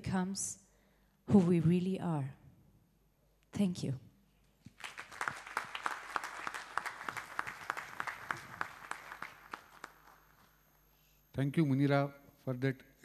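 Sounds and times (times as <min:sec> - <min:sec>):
audience applauding: 0:04.7 - 0:10.5.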